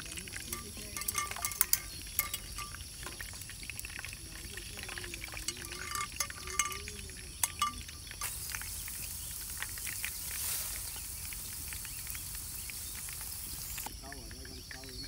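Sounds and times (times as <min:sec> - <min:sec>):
steady hiss: 0:00.0 - 0:15.0
cookware clinking: 0:00.3 - 0:03.4, 0:04.4 - 0:08.2.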